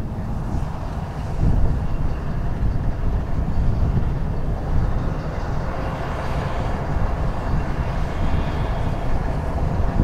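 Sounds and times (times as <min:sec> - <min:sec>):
diesel locomotives idling: 0:00.0 - 0:10.0.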